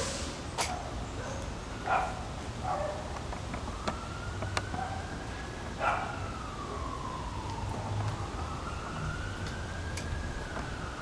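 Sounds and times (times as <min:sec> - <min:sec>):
emergency siren wailing: 0:03.5 - 0:11.0.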